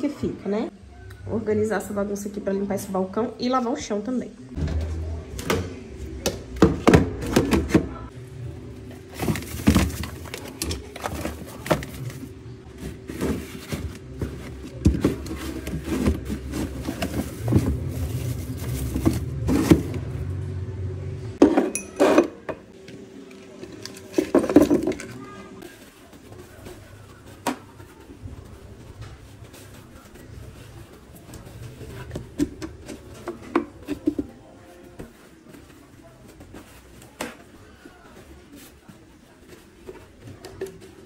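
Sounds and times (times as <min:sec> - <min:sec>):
kitchen items knocking and rattling: 0:04.6 - 0:08.1, 0:08.9 - 0:20.4, 0:21.4 - 0:22.7, 0:23.5 - 0:37.6.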